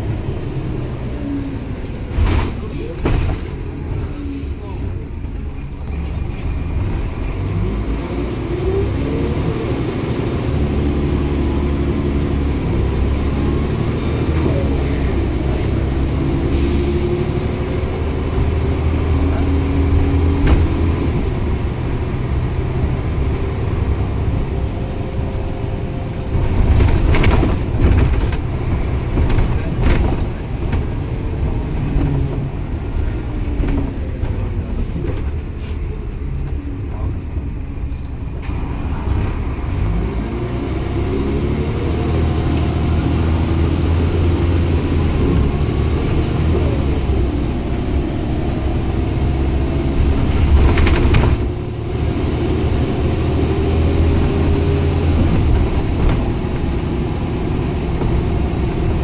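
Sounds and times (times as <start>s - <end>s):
bus body rattling and knocking: 0.0s - 7.5s, 17.1s - 39.7s, 42.7s - 59.0s
bus diesel engine pulling uphill: 0.0s - 59.0s.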